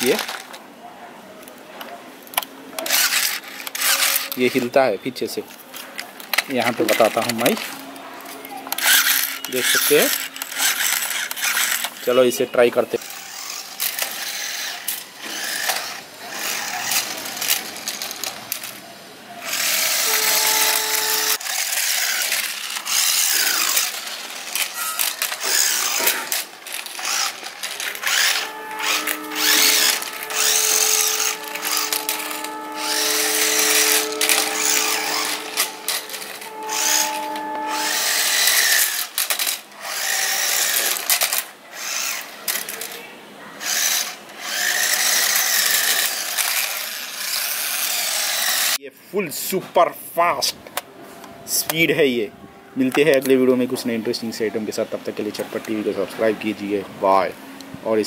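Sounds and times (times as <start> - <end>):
toy motorcycle electric motor whining: 0.0 - 0.6, 2.3 - 4.9, 5.8 - 48.8.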